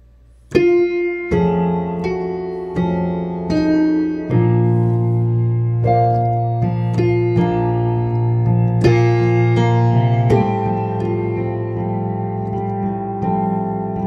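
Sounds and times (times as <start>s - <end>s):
slow gospel piano chords: 0.0s - 14.0s.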